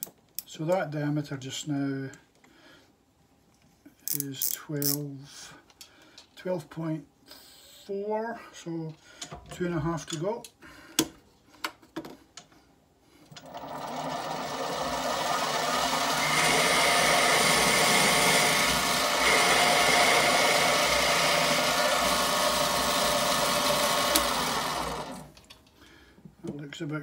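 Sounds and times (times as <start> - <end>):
metal lathe whirring: 13.4 - 25.3
cutting tool hissing: 14.5 - 25.3.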